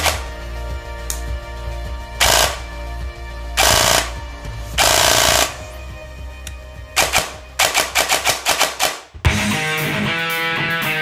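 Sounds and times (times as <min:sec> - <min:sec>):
airsoft rifle firing bursts: 0:00.0 - 0:00.3, 0:02.2 - 0:02.7, 0:03.6 - 0:04.2, 0:04.8 - 0:05.6, 0:07.0 - 0:09.2
background music: 0:00.0 - 0:11.0.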